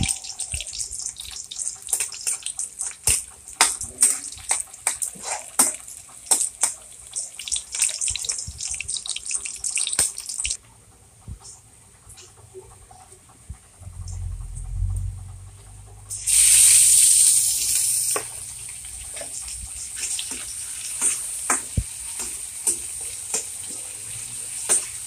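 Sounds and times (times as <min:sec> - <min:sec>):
onion sizzling in hot oil: 0:00.0 - 0:10.6, 0:16.1 - 0:25.0
low rumble: 0:13.5 - 0:16.1.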